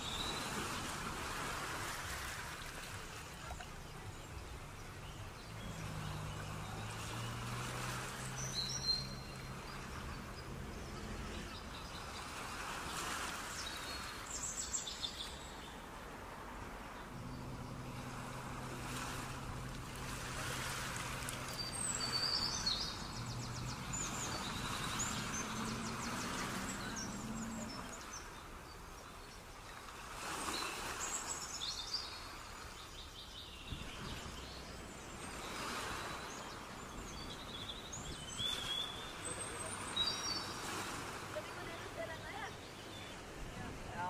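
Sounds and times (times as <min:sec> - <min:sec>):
birds chirping: 0:02.4 - 0:15.8, 0:16.8 - 0:29.8, 0:30.4 - 0:44.0
passing traffic: 0:03.7 - 0:14.2, 0:15.8 - 0:28.6, 0:34.0 - 0:44.0.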